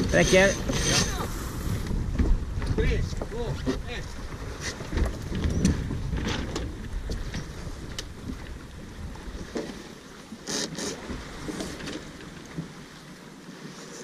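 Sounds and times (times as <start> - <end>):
wind buffeting microphone: 0.0 - 9.6
water rushing past hull: 0.0 - 14.0.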